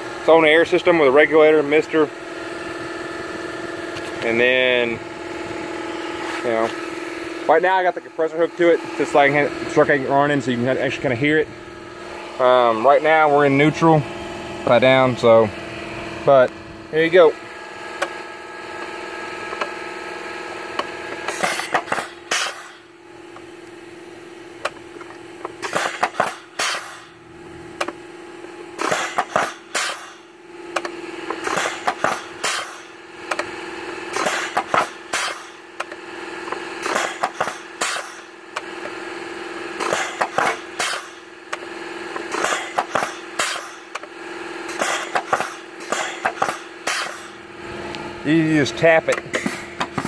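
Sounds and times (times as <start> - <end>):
truck and compressor hum: 0.0 - 50.0
pneumatic valve clicks: 28.8 - 33.5, 34.1 - 39.0, 39.8 - 41.6, 42.2 - 44.1, 44.7 - 47.3.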